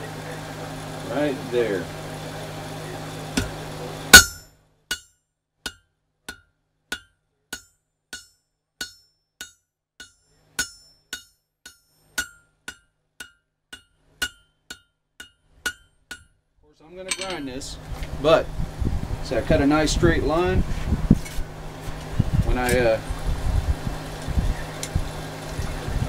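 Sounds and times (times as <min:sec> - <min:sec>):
hammer striking hot steel: 0:03.3 - 0:16.3, 0:17.1 - 0:17.7.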